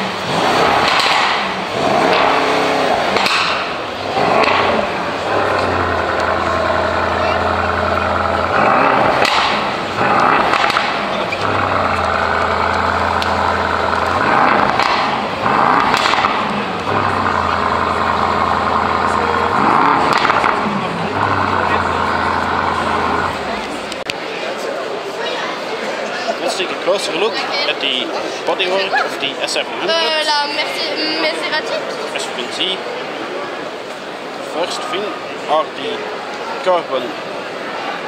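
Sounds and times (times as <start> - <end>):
car engine revving: 0.0 - 24.0.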